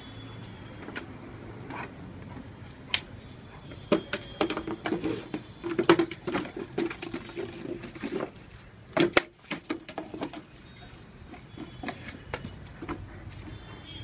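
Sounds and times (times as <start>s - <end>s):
bottle clicks and knocks: 5.6s - 7.6s.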